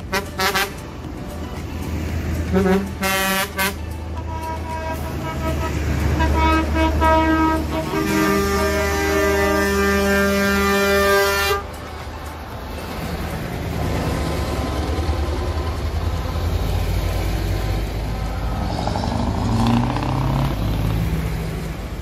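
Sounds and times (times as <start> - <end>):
truck air horn blaring: 0.0 - 0.9, 2.5 - 11.8
lorries driving past: 0.0 - 22.0.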